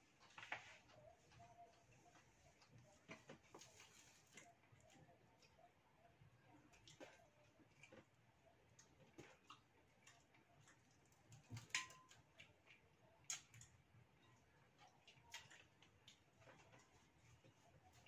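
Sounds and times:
shrimp shells cracking and chewing: 0:06.6 - 0:16.7.

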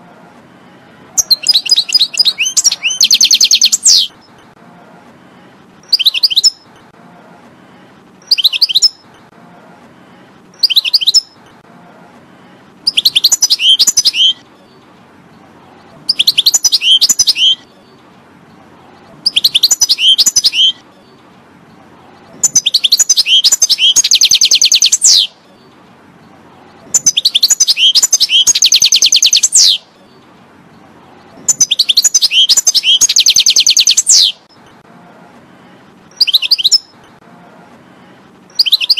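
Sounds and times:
goldfinch twittering song: 0:01.2 - 0:04.1, 0:22.4 - 0:25.3, 0:27.0 - 0:29.8, 0:31.5 - 0:34.4.

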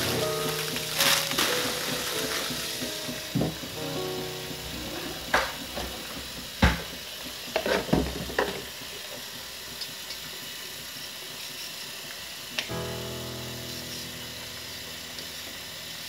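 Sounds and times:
tap water running into steel bowl: 0:00.0 - 0:03.8, 0:04.4 - 0:12.7.

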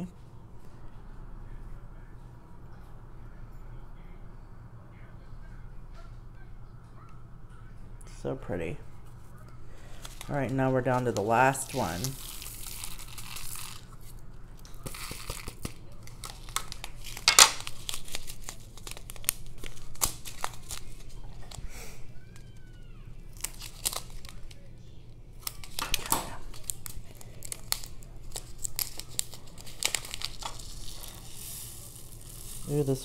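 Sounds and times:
plastic bag crinkling and tearing: 0:09.8 - 0:24.6, 0:25.4 - 0:33.0.

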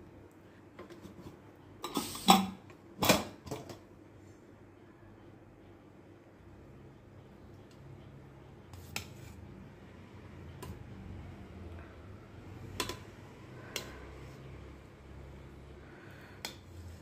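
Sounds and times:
spatula stirring rice: 0:07.4 - 0:11.0.

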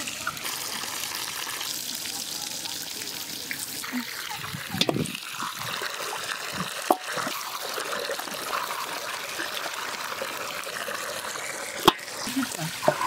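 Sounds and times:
water splashing in metal basin: 0:03.4 - 0:13.0.

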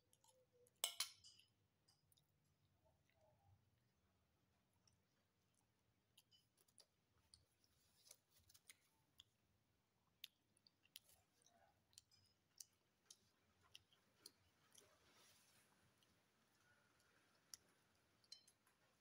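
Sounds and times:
mouth clicks and smacks chewing: 0:04.8 - 0:15.2.

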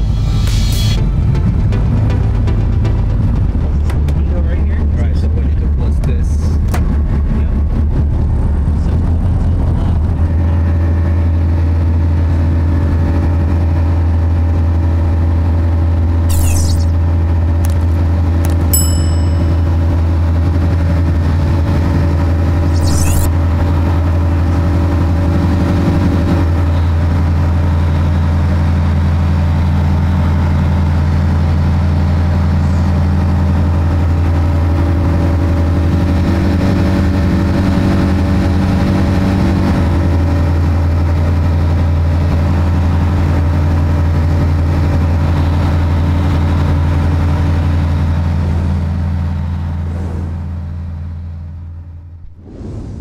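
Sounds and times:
light aircraft engine drone: 0:00.0 - 0:53.0.

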